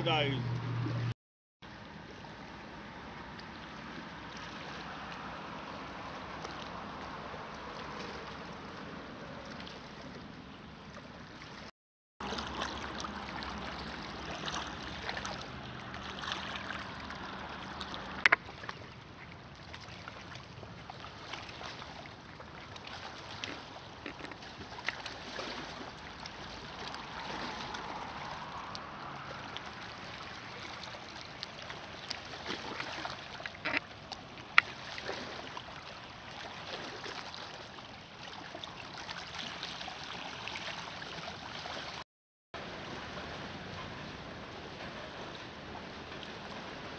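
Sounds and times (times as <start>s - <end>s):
waves lapping on pebbly shore: 11.4s - 42.0s.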